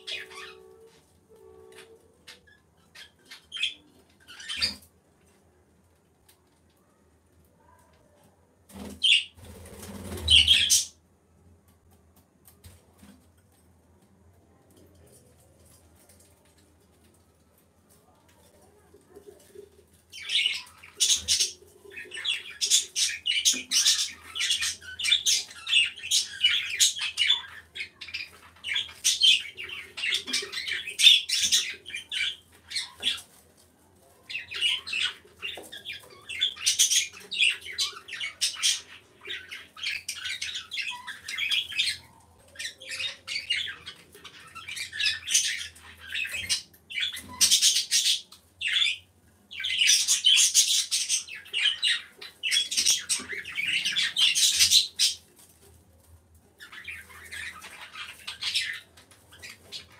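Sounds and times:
birds chirping and squawking: 0.0s - 4.9s, 8.7s - 11.0s, 19.4s - 33.6s, 34.3s - 55.8s, 56.6s - 59.9s.

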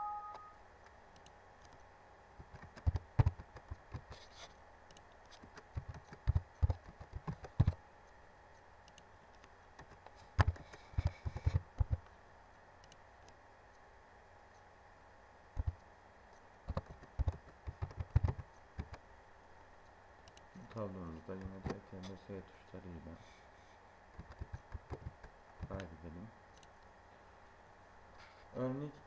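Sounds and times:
typing on keyboard: 5.6s - 7.8s, 16.7s - 19.0s, 24.2s - 25.8s.

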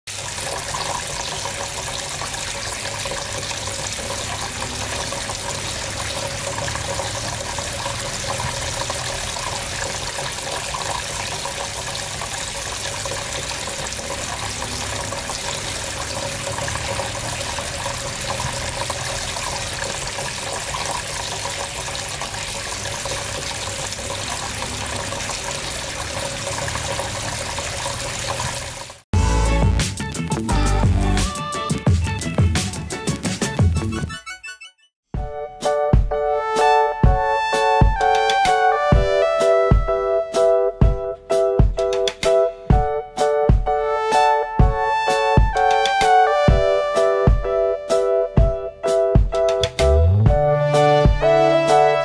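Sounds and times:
water splashing into basin: 0.1s - 29.0s.

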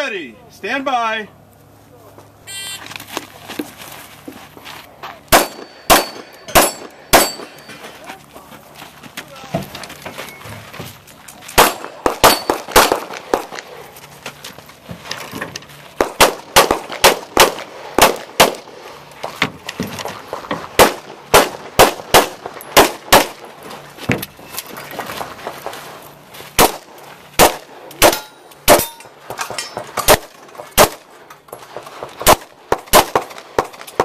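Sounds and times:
pistol shots: 5.3s - 7.6s, 11.6s - 13.8s, 16.0s - 18.8s, 20.8s - 23.5s, 26.6s - 29.1s, 29.8s - 31.1s, 31.8s - 34.0s.

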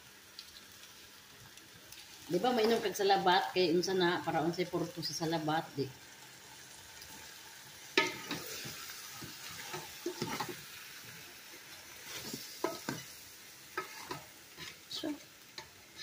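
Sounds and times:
faint sizzle: 0.0s - 16.0s
spatula scraping pot: 8.0s - 10.6s, 13.8s - 14.8s.

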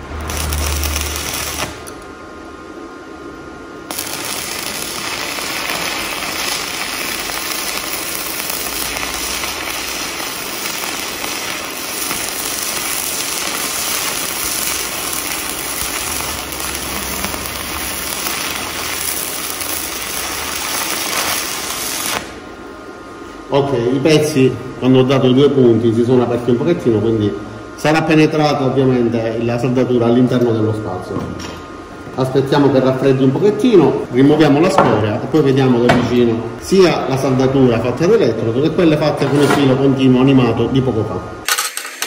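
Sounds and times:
welding arc crackle and hiss: 0.0s - 2.1s, 3.8s - 22.6s.

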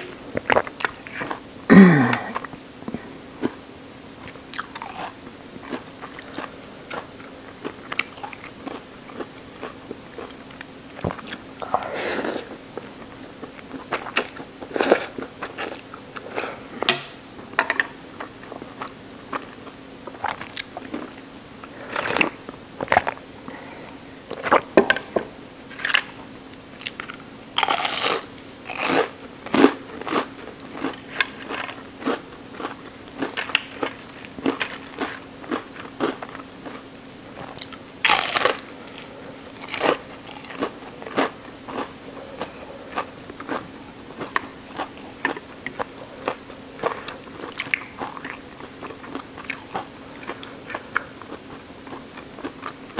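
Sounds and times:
faint steady hum: 0.0s - 52.9s
wet chewing with crunchy bites: 4.2s - 11.8s, 18.2s - 23.2s, 26.8s - 52.9s.

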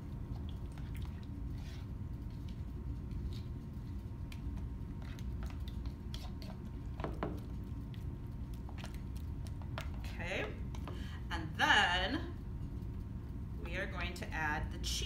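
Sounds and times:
wet squishing of stirred mixture: 0.0s - 11.3s
utensil tapping and scraping bowl: 0.7s - 11.0s.

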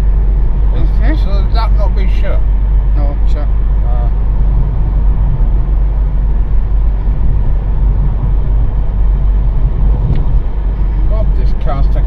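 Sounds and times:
car cabin road rumble: 0.0s - 12.0s.

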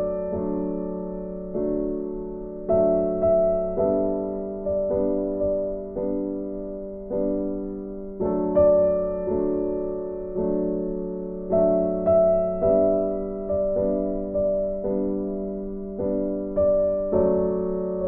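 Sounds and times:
gentle piano chords: 0.0s - 18.0s.

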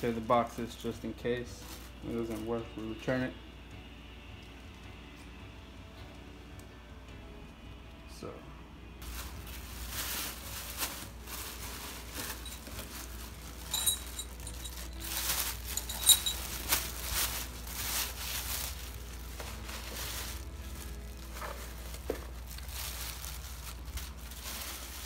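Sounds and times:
plastic bag crinkling: 9.0s - 25.0s.

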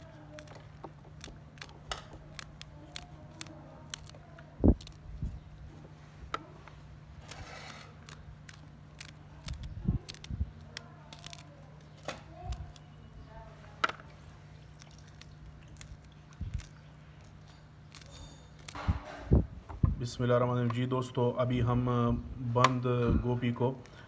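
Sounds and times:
knife slicing chillies: 0.0s - 5.2s, 7.2s - 13.0s, 14.8s - 19.2s.

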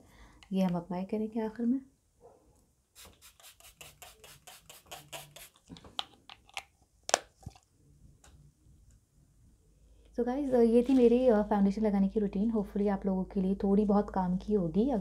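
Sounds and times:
spray bottle hissing sprays: 3.0s - 5.7s.

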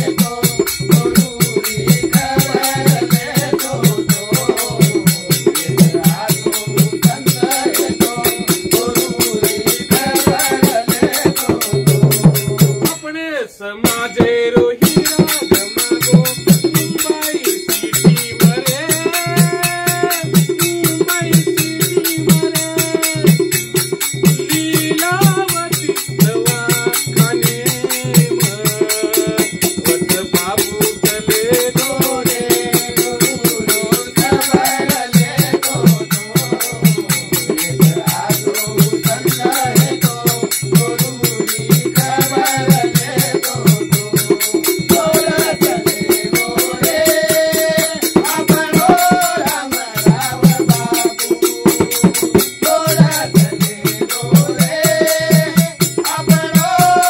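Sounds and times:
person singing: 0.0s - 12.2s, 24.3s - 57.0s
fast percussion beat: 0.0s - 57.0s.

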